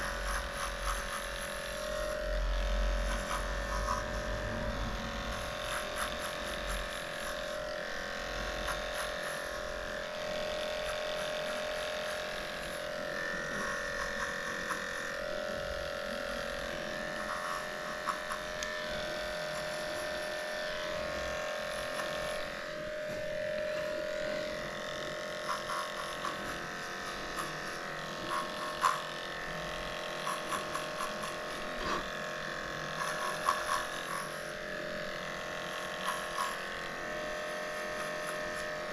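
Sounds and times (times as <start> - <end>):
dog clipper humming: 0.0 - 38.9.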